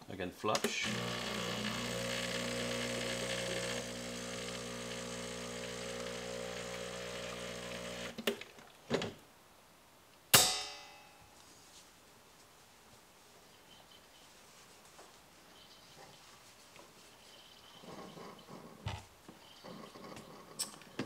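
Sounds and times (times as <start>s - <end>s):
espresso machine pump humming: 0.8s - 8.2s
sharp metallic clank: 10.3s - 11.3s.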